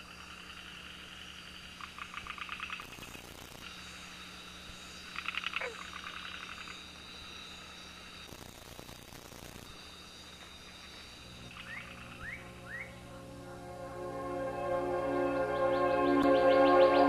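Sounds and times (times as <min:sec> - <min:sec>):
rapid pulsing animal calls: 0:00.0 - 0:08.2, 0:09.4 - 0:13.1
high insect drone: 0:00.0 - 0:17.0.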